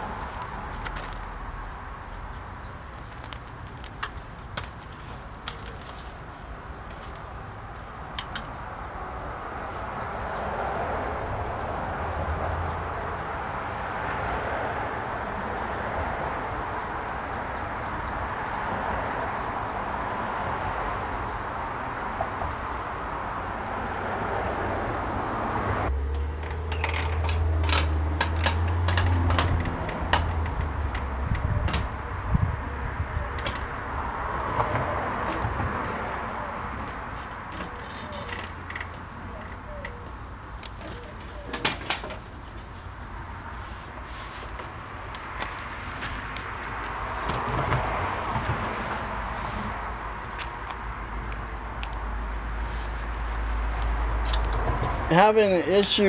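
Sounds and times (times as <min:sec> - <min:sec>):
clicks and taps of netting: 0:03.1 - 0:06.2, 0:26.1 - 0:31.9.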